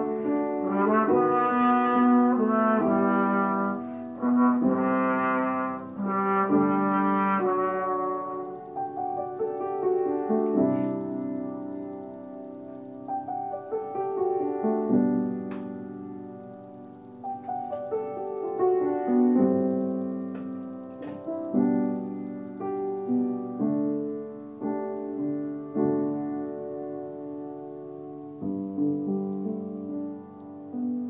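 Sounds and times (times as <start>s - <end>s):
slow piano playing: 0.0s - 31.0s.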